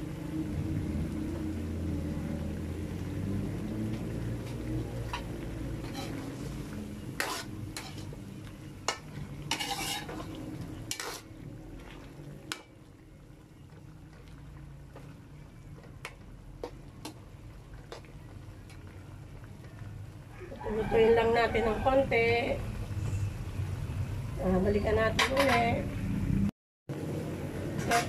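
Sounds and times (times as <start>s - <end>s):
faint sauce sizzling: 0.0s - 28.0s
metal spoon scraping a wok: 5.0s - 8.2s, 8.8s - 11.4s, 25.2s - 25.8s, 27.8s - 28.0s.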